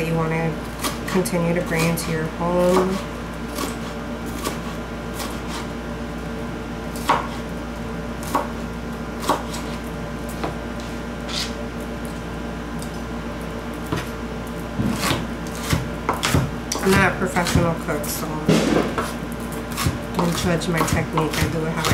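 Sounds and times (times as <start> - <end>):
low steady hum: 0.0 - 21.9
knife chopping on plastic board: 7.0 - 7.4, 8.3 - 8.5, 9.2 - 9.7, 14.8 - 17.7, 18.5 - 21.9.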